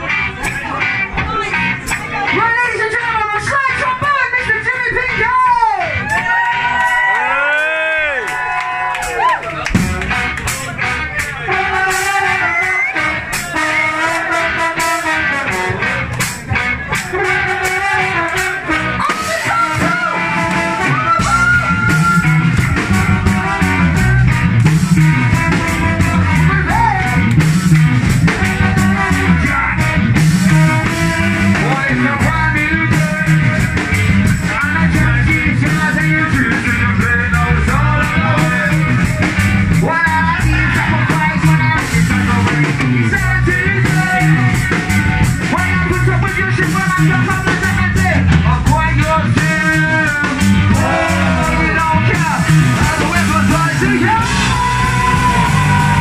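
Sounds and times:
vocals: 0.0s - 6.3s, 9.6s - 24.2s, 25.0s - 56.0s
bass and drums: 0.0s - 56.0s
electric guitar: 0.0s - 56.0s
trombone: 9.9s - 34.0s, 50.5s - 56.0s
saxophone: 10.0s - 34.0s.

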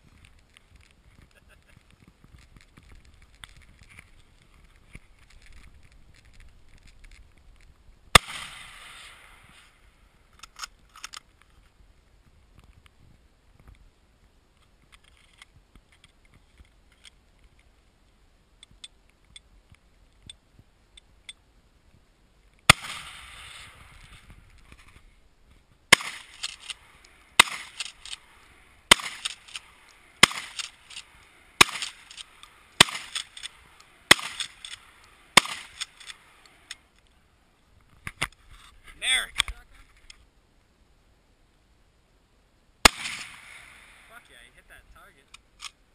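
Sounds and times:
gunshots: 8.1s - 9.4s, 22.7s - 24.1s, 25.9s - 26.8s, 27.4s - 28.2s, 28.9s - 36.3s, 42.8s - 44.2s.

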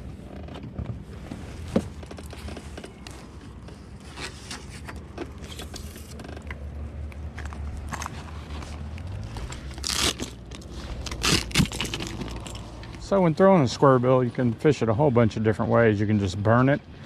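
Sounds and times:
steady low rumble: 0.0s - 16.2s
gear clicks and knocks: 0.2s - 13.2s.

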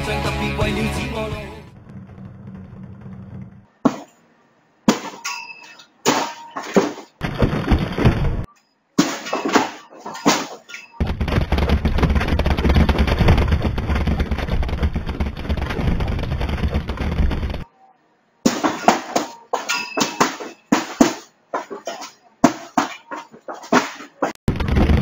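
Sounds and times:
crashes with breaking glass: 4.9s - 8.3s, 9.0s - 17.3s
dense continuous din: 7.2s - 17.7s, 24.5s - 25.0s.

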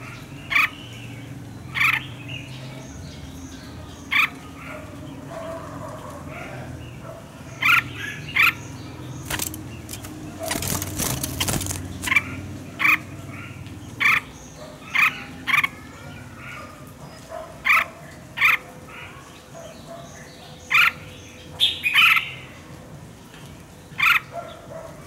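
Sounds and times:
bird giving sharp calls: 7.6s - 13.1s.

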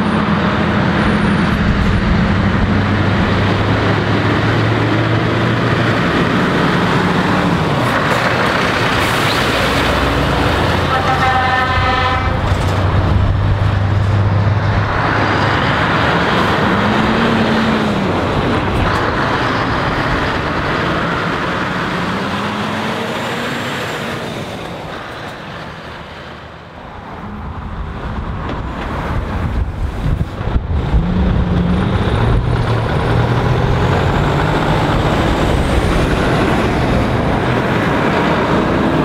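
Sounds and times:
diesel engines accelerating: 0.0s - 39.0s
vehicle approaching: 0.0s - 39.0s
truck horn blast: 10.6s - 12.7s.

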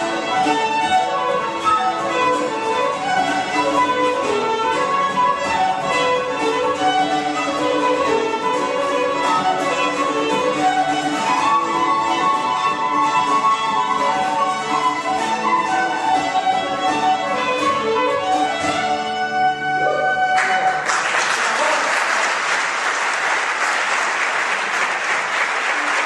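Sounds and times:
folk band with flute and fiddle: 0.0s - 20.8s
audience applause: 20.4s - 26.0s.

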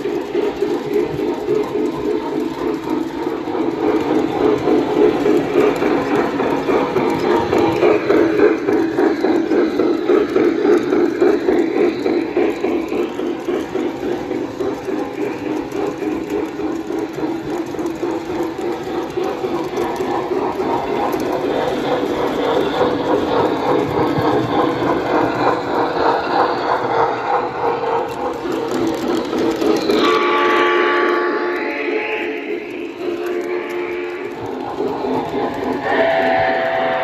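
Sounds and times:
model train wheels clattering: 0.0s - 37.0s
steam whistle: 30.0s - 32.4s, 33.1s - 34.3s, 35.9s - 37.0s.

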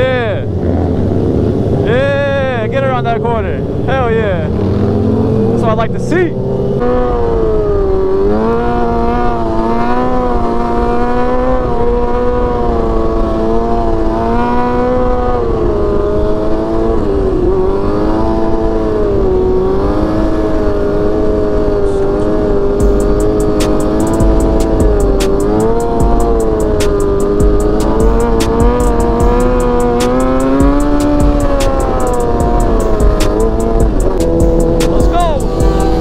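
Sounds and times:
motorcycle engine running: 0.0s - 36.0s.

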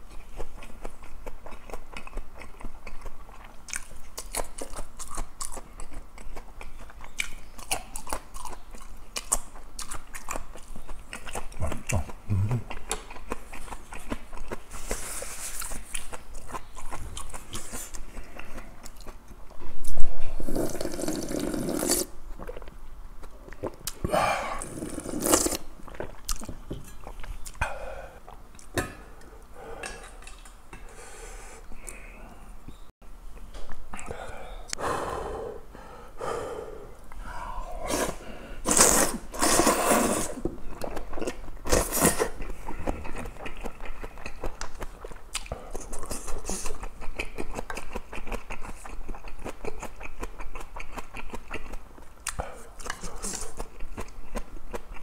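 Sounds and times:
person chewing and crunching: 0.0s - 30.6s, 37.0s - 55.0s
noodle slurping: 20.4s - 22.1s, 24.1s - 25.7s, 37.2s - 40.4s, 41.7s - 43.6s.

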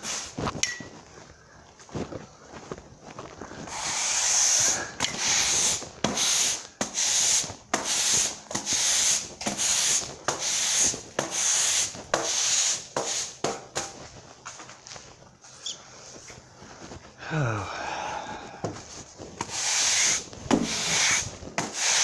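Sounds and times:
broom sweeping concrete floor: 0.0s - 0.9s, 3.6s - 17.0s, 18.8s - 22.0s.

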